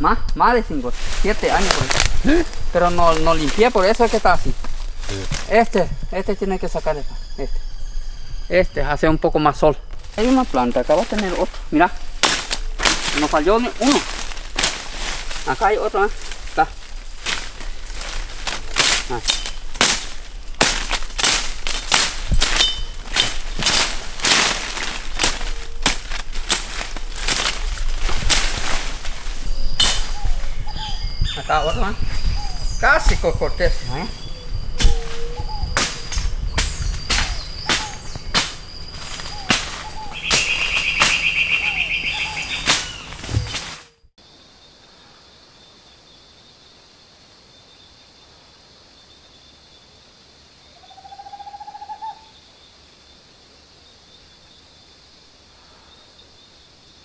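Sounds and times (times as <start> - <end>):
undergrowth rustling and crackling: 0.0 - 7.1, 9.3 - 44.1
faint high insect tone: 0.0 - 57.0
plant stems snapping: 1.2 - 5.6, 9.9 - 29.2, 35.8 - 41.3, 42.6 - 43.8.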